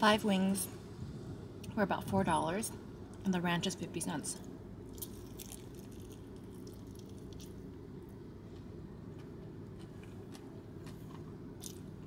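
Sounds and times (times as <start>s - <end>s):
low hum: 0.0s - 12.0s
person biting and chewing: 4.9s - 7.8s, 9.1s - 12.0s.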